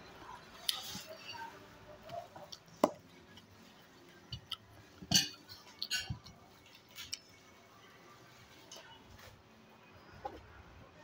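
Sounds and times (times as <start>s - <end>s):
plates and cutlery clinking: 4.3s - 6.4s.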